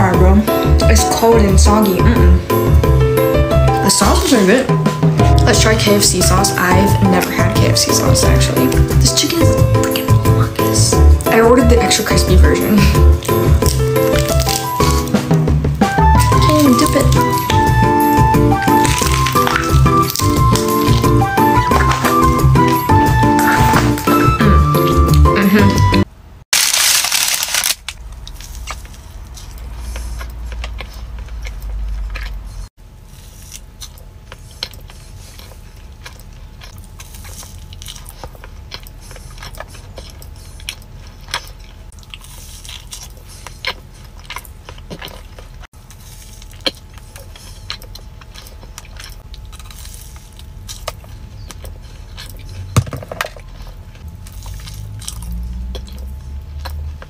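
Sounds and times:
cookie crunching while chewing: 0:05.4 - 0:15.3, 0:15.9 - 0:25.3, 0:26.5 - 0:57.0.

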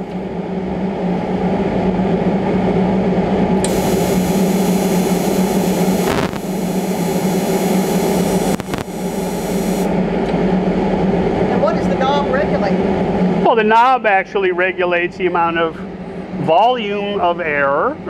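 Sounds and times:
gas hissing: 0:03.6 - 0:09.9
welder humming: 0:03.6 - 0:09.9
small clicks: 0:08.5 - 0:08.9.

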